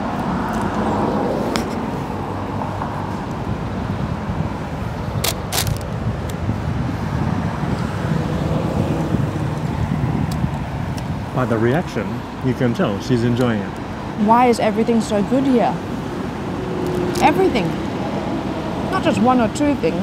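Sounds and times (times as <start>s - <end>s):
road traffic rumble: 0.0s - 20.0s
sharp clicks: 5.2s - 6.4s.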